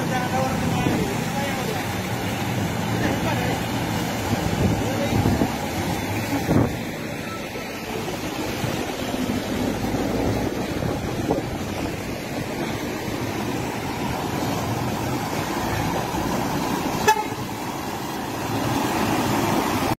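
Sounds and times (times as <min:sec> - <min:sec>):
vehicles driving through floodwater: 0:00.0 - 0:20.0
car horn toot: 0:17.0 - 0:17.4.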